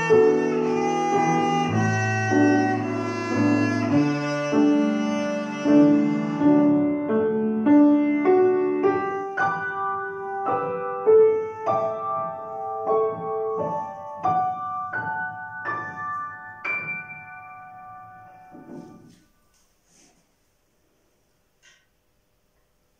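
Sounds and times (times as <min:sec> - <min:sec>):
grand piano slow rising notes: 0:00.0 - 0:19.6.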